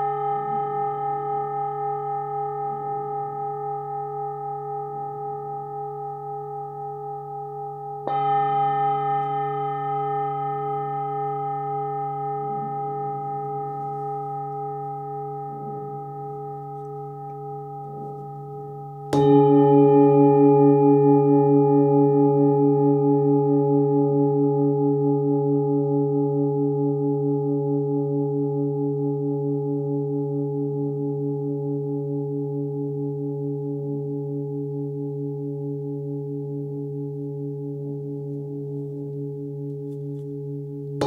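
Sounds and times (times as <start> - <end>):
singing bowl struck and ringing: 0.0 - 41.0.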